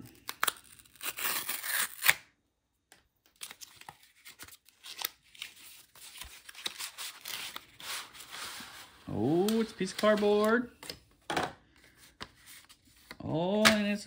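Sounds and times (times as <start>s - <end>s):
cardboard tearing and rustling: 0.2s - 2.2s, 3.4s - 10.3s.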